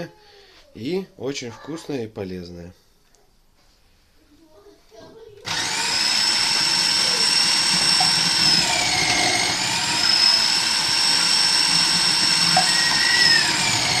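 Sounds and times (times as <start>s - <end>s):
food processor motor whining: 5.5s - 14.0s.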